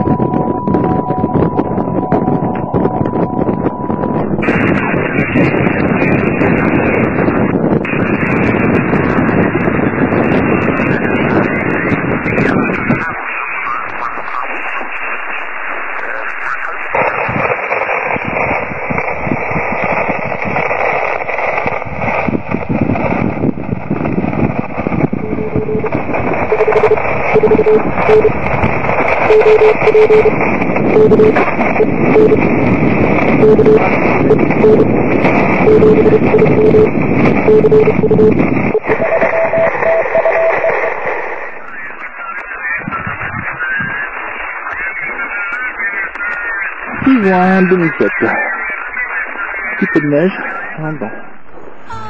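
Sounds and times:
higher-pitched morse code beeping: 0.0 - 4.4, 25.1 - 32.4, 35.6 - 41.0
morse code beeping: 0.0 - 4.5, 25.0 - 41.7
radio static hiss: 0.0 - 52.0.

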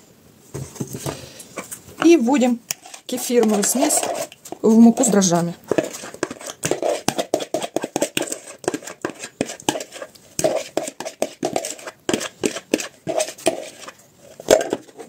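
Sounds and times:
metal spoon scraping bowl: 1.5 - 15.0.

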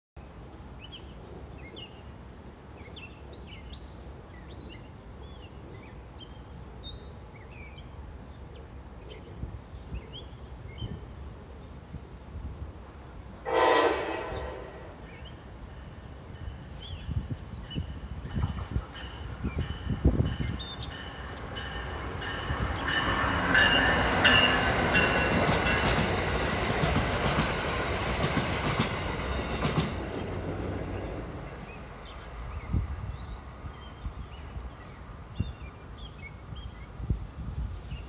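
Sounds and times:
train horn blast: 13.4 - 15.0
bird chirps: 14.3 - 16.0.

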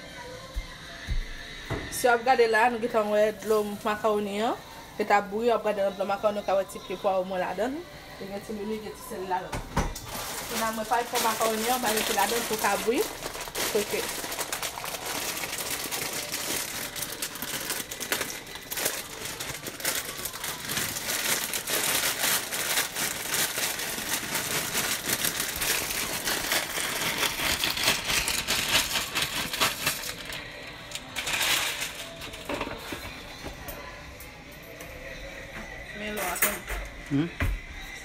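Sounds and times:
plastic bag crinkling: 10.0 - 32.9.

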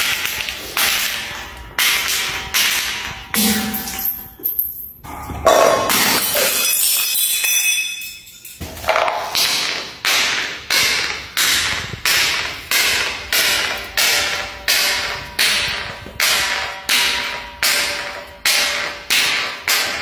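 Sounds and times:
glass jar clacking down stairs: 0.0 - 20.0.

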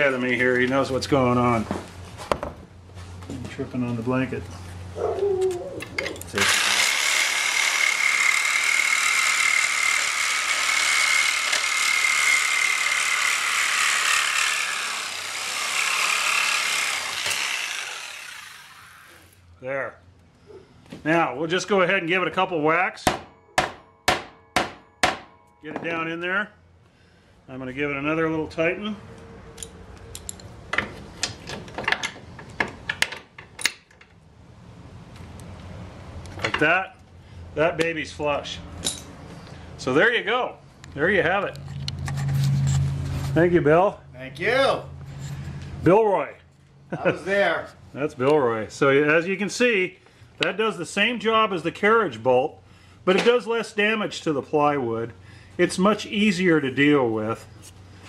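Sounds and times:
reciprocating saw cutting bolt: 6.2 - 19.4.

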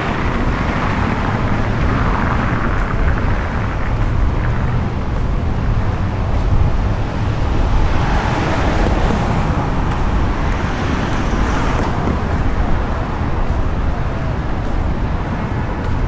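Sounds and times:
car passing close by: 0.0 - 14.4
city road traffic: 0.0 - 16.0.

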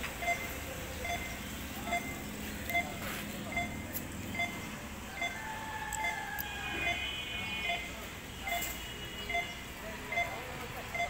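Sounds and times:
crossing signal beeping: 0.0 - 11.0
street traffic: 0.0 - 11.0.

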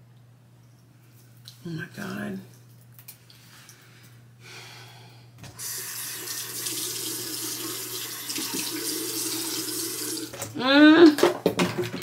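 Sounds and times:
water running into sink: 5.5 - 10.5.

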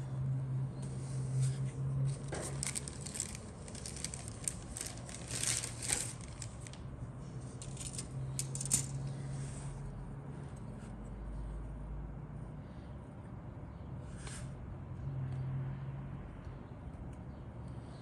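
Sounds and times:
steady low hum: 0.0 - 18.0
plastic sprues clicking and clattering: 2.2 - 6.8, 7.6 - 9.0.

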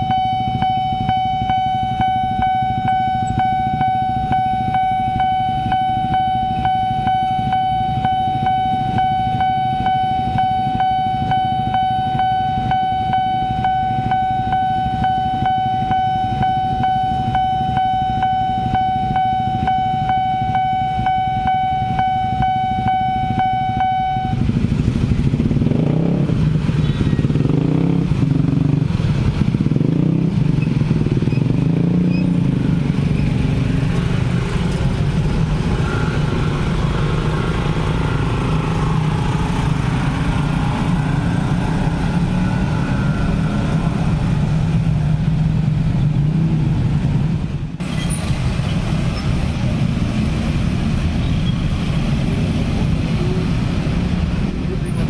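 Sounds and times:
railroad crossing warning bell: 0.0 - 24.7, 33.7 - 44.8
motorcycle engines revving: 0.0 - 55.0.

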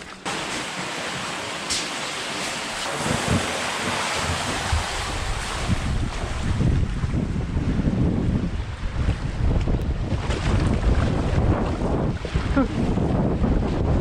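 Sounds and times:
water rushing down slide: 0.0 - 14.0
wind gusts on microphone: 3.0 - 14.0.

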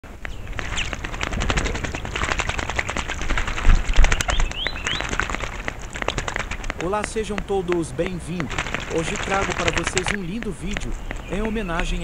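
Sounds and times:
bird splashing in bird bath: 0.1 - 12.0
short rising bird chirps: 3.9 - 5.2.

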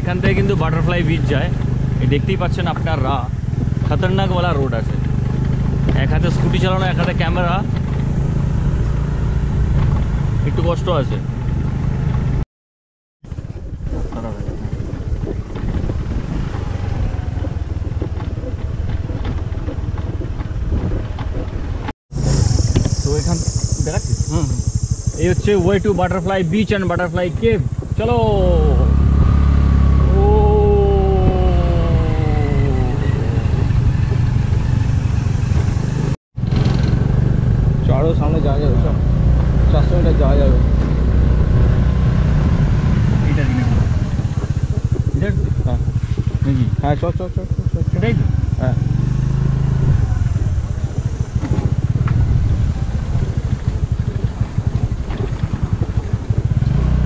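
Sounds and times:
road rumble: 0.0 - 12.4, 13.2 - 57.0
scooter engine running: 0.0 - 12.4, 13.3 - 57.0
wind: 0.0 - 12.4, 13.2 - 57.0
light rattles and knocks: 15.2 - 21.9
long falling tone: 28.2 - 35.1.

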